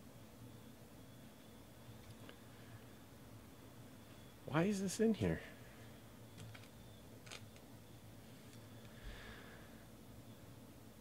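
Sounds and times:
cards rustling in hands: 0:06.4 - 0:07.6.

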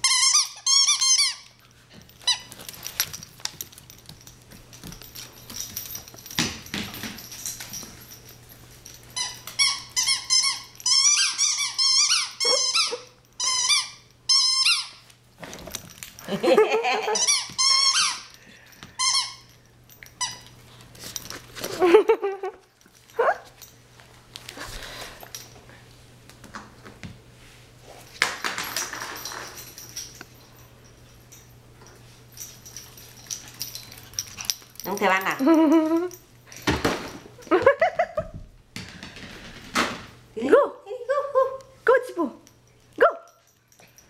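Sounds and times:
squeaky dog toy squeaking: 0:00.0 - 0:01.6, 0:09.2 - 0:15.0, 0:17.1 - 0:18.3.

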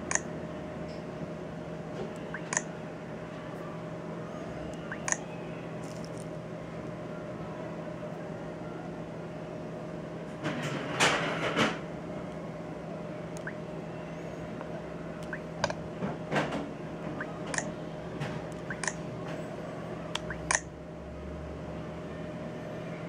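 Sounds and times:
fingers tapping touchscreen: 0:02.4 - 0:02.6, 0:18.6 - 0:19.0, 0:20.2 - 0:20.6
steady low hum: 0:11.8 - 0:22.6.

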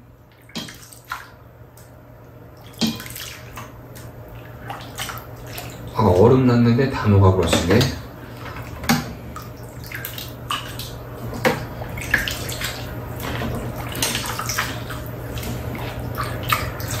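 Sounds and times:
steady low hum: 0:00.0 - 0:17.0
liquid splashing and pouring: 0:02.6 - 0:06.0, 0:08.2 - 0:17.0.

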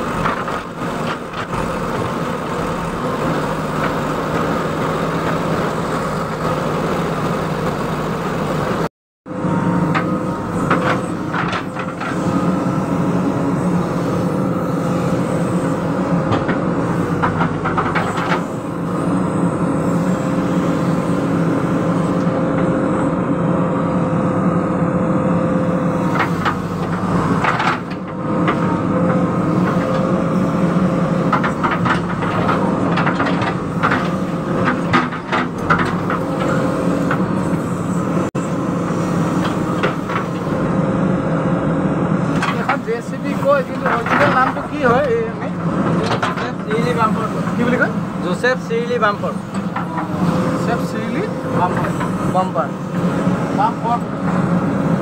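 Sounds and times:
diesel engine running: 0:00.0 - 0:55.0
knocks and clatter: 0:17.2 - 0:18.5, 0:26.2 - 0:30.1, 0:31.3 - 0:37.2, 0:46.0 - 0:46.5.

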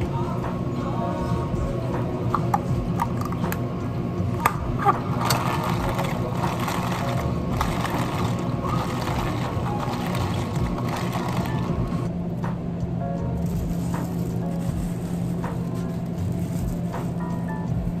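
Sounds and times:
machine hum: 0:00.0 - 0:18.0
plastic cup clicks and taps: 0:02.3 - 0:03.6.

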